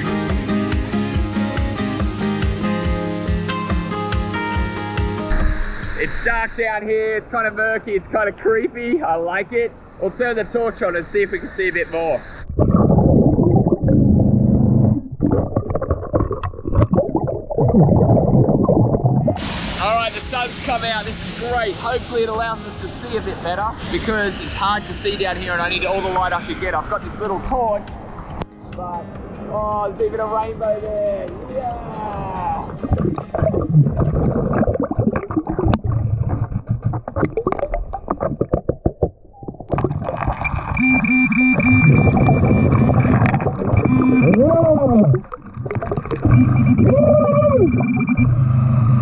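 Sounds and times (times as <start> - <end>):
underwater air bubbling: 12.4 - 19.8, 32.6 - 49.0.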